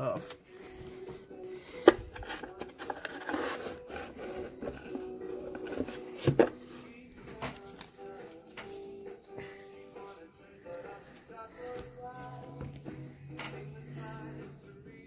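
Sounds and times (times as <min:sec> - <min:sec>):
cards rubbing and sliding: 0:01.6 - 0:10.6.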